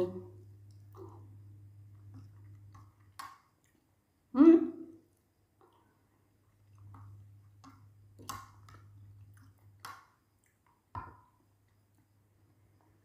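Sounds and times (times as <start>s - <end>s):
faint low hum: 0.0s - 13.0s
chewing: 0.5s - 3.9s, 5.6s - 12.1s.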